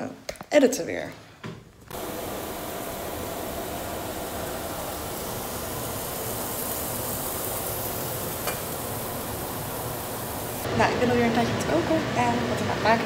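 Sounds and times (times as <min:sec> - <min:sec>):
onions sizzling in a pot: 0:01.9 - 0:12.9.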